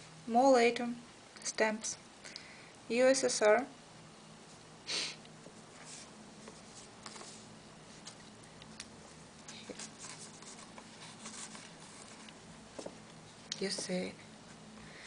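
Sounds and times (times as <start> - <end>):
paper rustling: 5.8 - 8.3, 9.4 - 12.9
pages turning with light ticks: 5.8 - 13.0.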